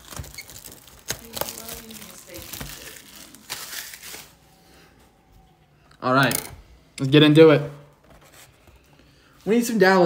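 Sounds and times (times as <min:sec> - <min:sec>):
plastic shrink wrap crinkling: 0:00.0 - 0:04.4.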